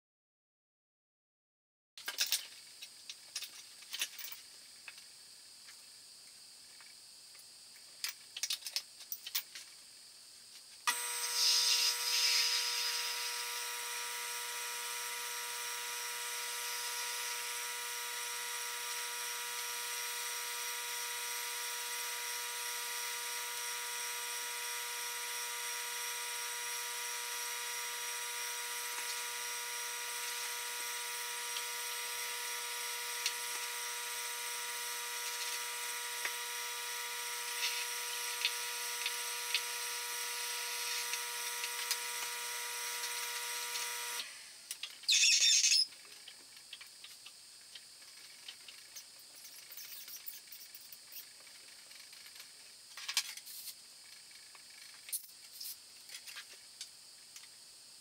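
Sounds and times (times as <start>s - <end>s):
metal parts clicking and knocking: 2.0s - 5.0s, 8.0s - 9.7s
lathe motor whining: 10.9s - 44.4s.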